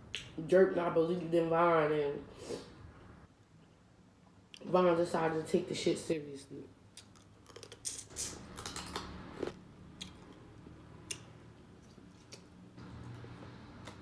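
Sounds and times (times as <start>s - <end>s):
sucking and chewing: 7.0s - 14.0s.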